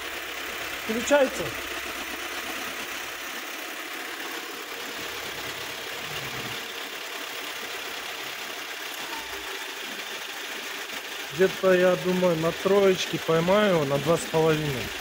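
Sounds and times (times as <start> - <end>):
refrigeration compressor running: 0.0 - 15.0
van engine idling: 0.0 - 15.0.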